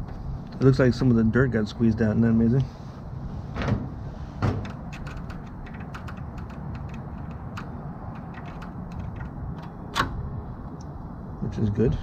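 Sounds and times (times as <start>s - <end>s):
low background hum: 0.0s - 12.0s
metal pick clicking and scraping: 4.6s - 10.2s.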